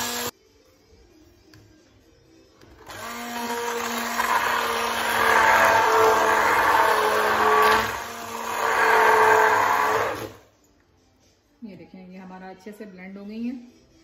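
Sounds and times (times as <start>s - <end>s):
hand blender motor whirring: 0.0s - 0.3s, 2.8s - 10.4s.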